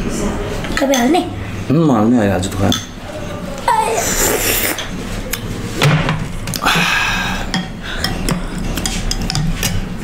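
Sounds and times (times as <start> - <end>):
slurping noodle soup: 3.9 - 4.9
spoons clicking against bowls: 7.5 - 9.9.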